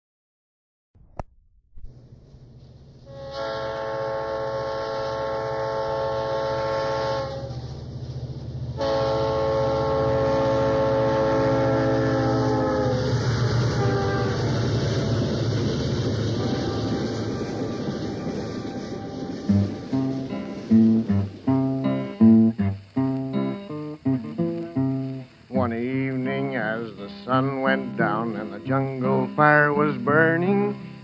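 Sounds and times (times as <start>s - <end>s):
moving train rumble: 1.9s - 31.0s
steam locomotive whistle: 3.1s - 7.6s, 8.8s - 15.5s, 16.3s - 21.3s.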